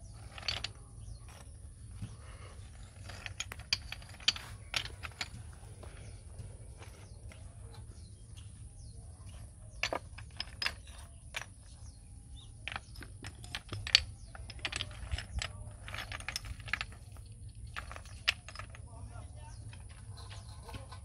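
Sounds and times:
steady low hum: 0:00.0 - 0:21.0
stone strips clinking together: 0:02.8 - 0:05.6, 0:09.3 - 0:21.0.

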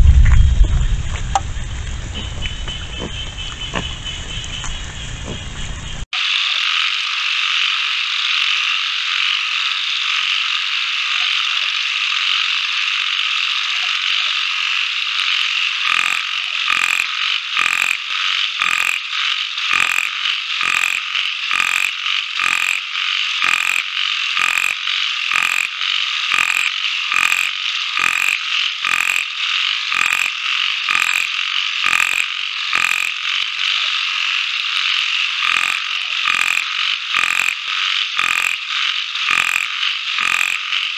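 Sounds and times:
high-pitched droning animal chorus: 0:01.6 - 0:40.9
loud pulsed animal call: 0:19.7 - 0:22.8, 0:24.4 - 0:25.7, 0:26.3 - 0:29.3, 0:29.9 - 0:30.3, 0:35.4 - 0:38.6, 0:39.2 - 0:40.6.

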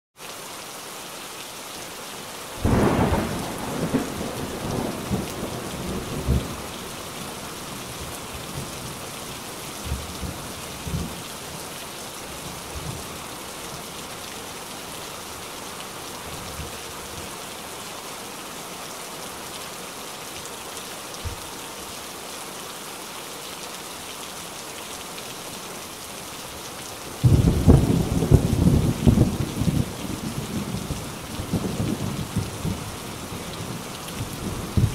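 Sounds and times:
steady rain falling: 0:00.2 - 0:34.9
thunder rumbling: 0:02.6 - 0:06.7, 0:27.2 - 0:32.9.

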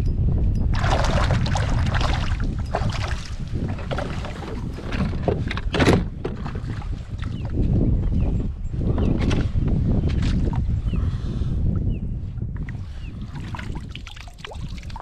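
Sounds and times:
wind rumble on microphone: 0:00.0 - 0:15.0
water splashes: 0:00.8 - 0:04.7, 0:13.3 - 0:15.0.

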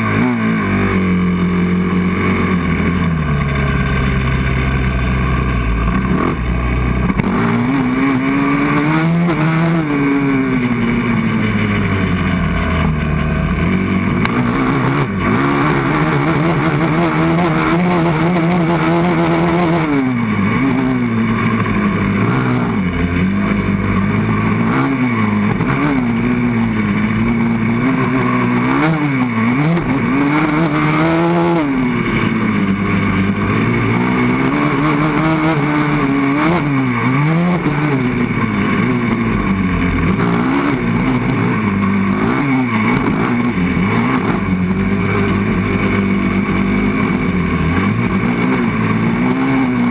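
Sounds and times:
quad engine revving: 0:00.0 - 0:49.9.

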